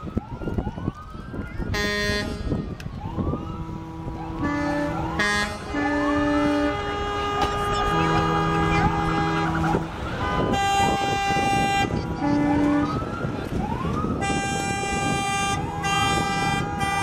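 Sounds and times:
crowd noise: 0.0s - 17.0s
siren whooping: 0.0s - 17.0s
vehicle horns honking: 1.7s - 2.6s, 3.6s - 13.2s, 14.2s - 17.0s.

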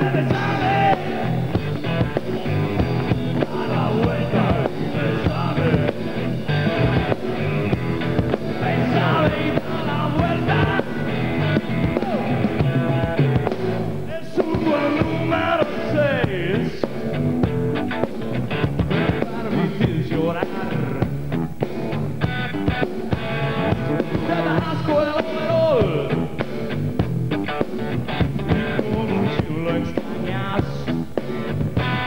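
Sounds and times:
man singing: 0.0s - 7.4s, 8.5s - 13.0s, 14.0s - 17.0s, 18.9s - 21.1s, 24.0s - 26.4s, 28.5s - 31.0s
bass guitar: 0.0s - 32.0s
drum kit: 0.0s - 32.0s
electric guitar: 0.0s - 32.0s.

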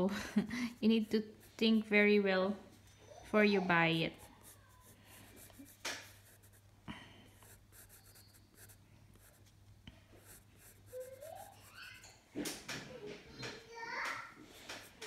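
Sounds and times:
pencil scratching on paper: 0.7s - 2.2s, 3.2s - 6.7s, 7.4s - 9.5s, 10.2s - 12.1s, 14.7s - 15.0s.

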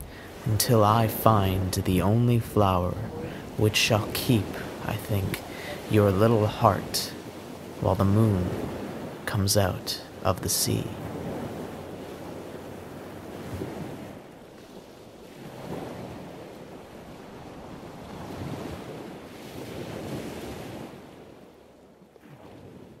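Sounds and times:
wind blowing over microphone: 0.0s - 21.6s
small waves washing ashore: 0.0s - 23.0s.

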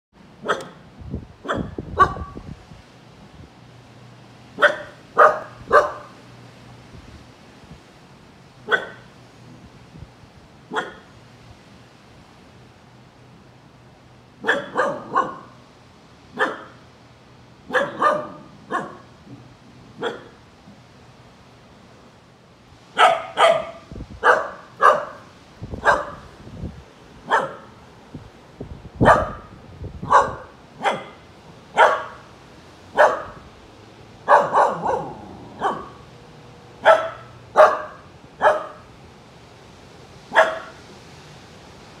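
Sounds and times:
puppy barking: 0.4s - 0.8s, 1.4s - 2.4s, 4.6s - 6.2s, 8.6s - 9.1s, 10.7s - 11.1s, 14.4s - 15.6s, 16.4s - 16.8s, 17.7s - 19.1s, 20.0s - 20.4s, 23.0s - 26.3s, 27.2s - 27.8s, 29.0s - 31.2s, 31.8s - 32.2s, 32.9s - 33.4s, 34.2s - 36.1s, 36.8s - 38.9s, 40.3s - 40.8s.

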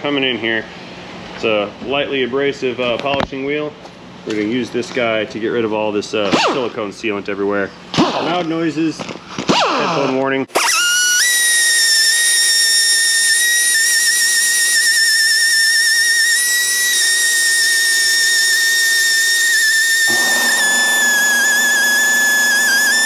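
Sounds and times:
grinder whining: 10.5s - 23.0s
grinding on metal: 20.1s - 23.0s.

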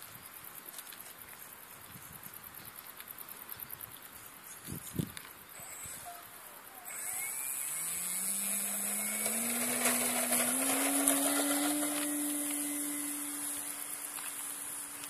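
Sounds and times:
model plane motor whine rising: 5.6s - 15.0s.

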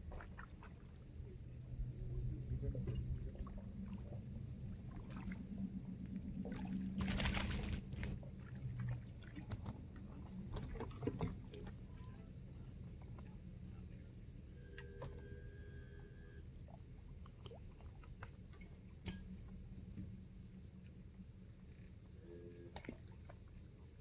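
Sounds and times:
boat motor drone: 0.0s - 24.0s
fish splash: 6.4s - 9.6s.

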